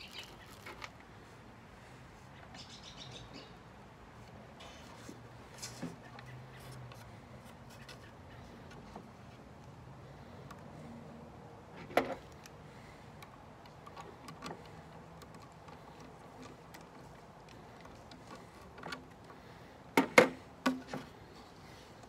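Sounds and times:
wooden crate parts knocking: 0:19.9 - 0:21.2.

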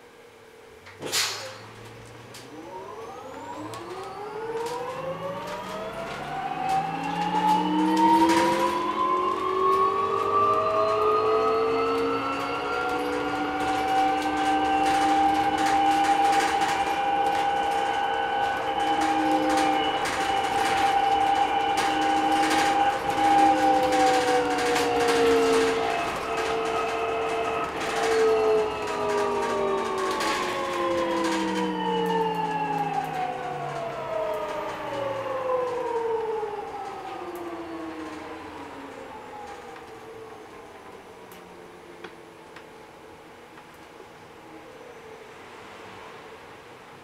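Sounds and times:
electric bus drive whining: 0:00.0 - 0:47.0
clicks and rattles: 0:03.4 - 0:38.3.

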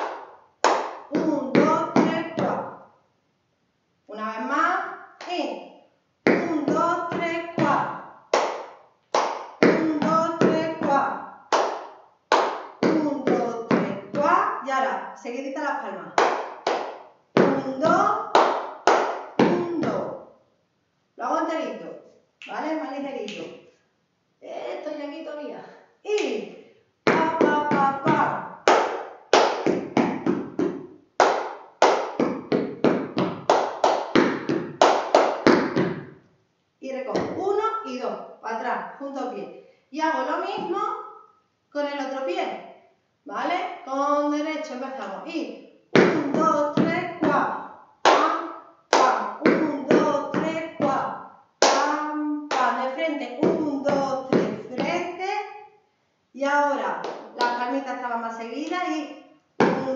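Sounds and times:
hand claps: 0:00.0 - 0:01.1, 0:08.3 - 0:09.5, 0:11.5 - 0:12.7, 0:16.2 - 0:19.6, 0:28.7 - 0:35.9, 0:51.6 - 0:51.9.

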